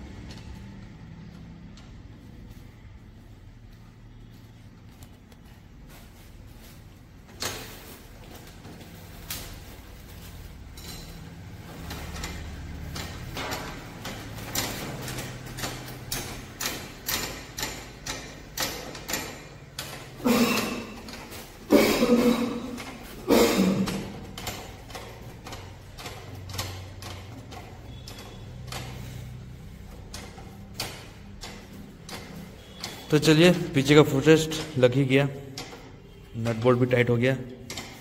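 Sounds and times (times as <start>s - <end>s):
wrench clicking on bolt: 11.9s - 21.4s.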